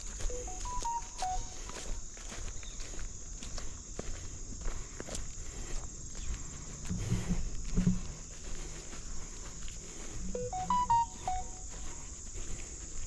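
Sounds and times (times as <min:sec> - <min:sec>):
crickets chirping: 0:00.0 - 0:13.0
footsteps through marsh vegetation: 0:00.0 - 0:13.0
clear pitched notes: 0:10.4 - 0:11.6.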